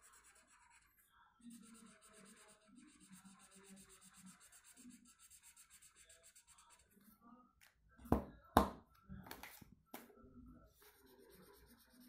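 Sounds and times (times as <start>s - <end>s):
marker scrubbing on paper: 0.0s - 7.0s, 10.8s - 12.0s.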